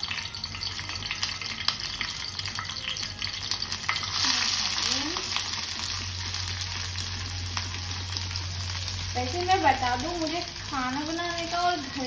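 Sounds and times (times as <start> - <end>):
chillies crackling in hot oil: 0.0 - 12.0
onions sizzling in oil: 0.0 - 12.0.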